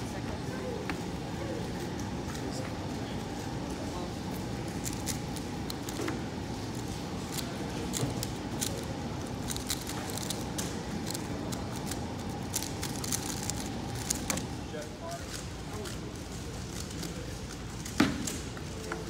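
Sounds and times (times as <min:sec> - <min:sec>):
room noise: 0:00.0 - 0:19.0
speed cube clicking: 0:04.7 - 0:06.0, 0:06.7 - 0:14.5.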